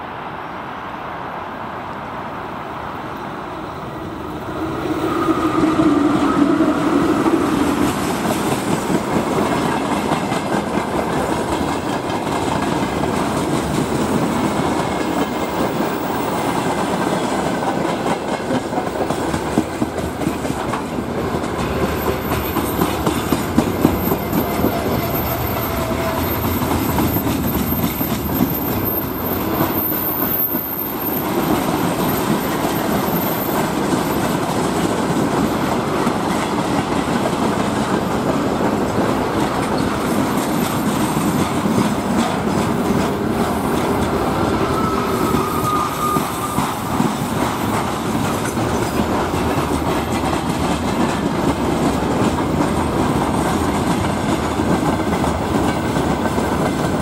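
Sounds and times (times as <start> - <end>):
train wheels rumbling on rails: 1.8 - 57.0
clickety-clack over rail joints: 5.0 - 57.0
faint wheel squeals: 44.6 - 46.9.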